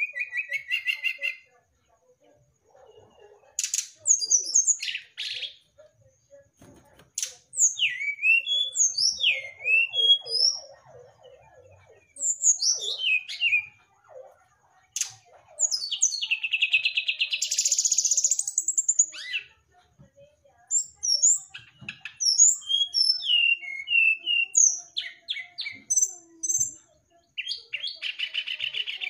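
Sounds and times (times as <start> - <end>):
bird singing whistles and trills: 0.0 - 1.4, 7.5 - 13.8, 20.7 - 26.8.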